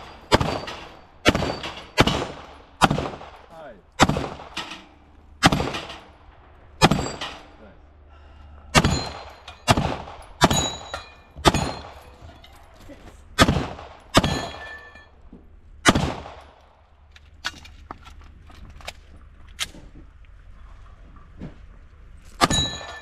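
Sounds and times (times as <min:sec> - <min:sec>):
steel targets ringing: 0:00.0 - 0:03.6, 0:04.4 - 0:07.7, 0:08.7 - 0:12.7, 0:13.9 - 0:15.2, 0:22.4 - 0:23.0
pistol shots: 0:00.0 - 0:04.6, 0:05.4 - 0:06.0, 0:06.8 - 0:07.2, 0:08.8 - 0:12.0, 0:13.4 - 0:14.7, 0:15.8 - 0:16.6.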